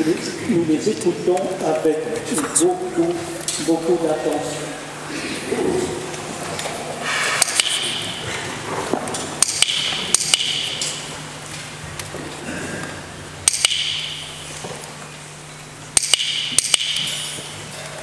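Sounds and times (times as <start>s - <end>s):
sharp metallic clicks: 9.4s - 11.0s, 13.4s - 14.2s, 16.0s - 17.3s.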